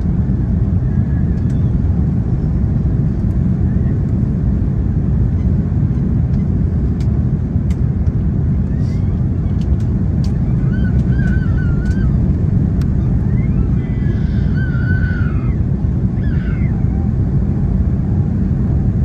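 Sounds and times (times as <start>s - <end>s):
airplane cabin engine roar: 0.0s - 19.0s
light clicks: 9.5s - 12.0s
faint high wavering squeal: 13.0s - 15.6s.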